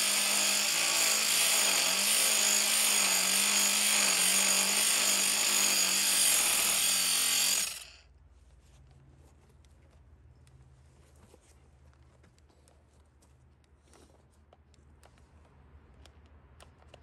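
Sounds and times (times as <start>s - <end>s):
power tool rasping hiss: 0.0s - 8.0s.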